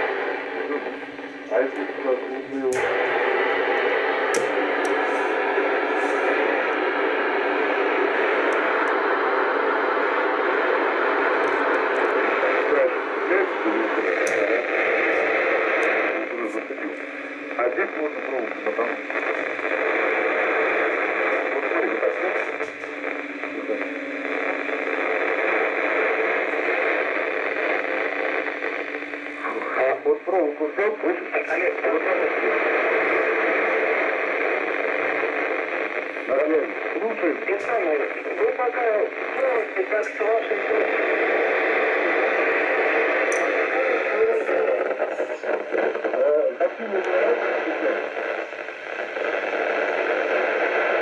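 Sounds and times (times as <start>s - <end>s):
radio static hiss: 0.0s - 51.0s
steady low hum: 0.0s - 51.0s.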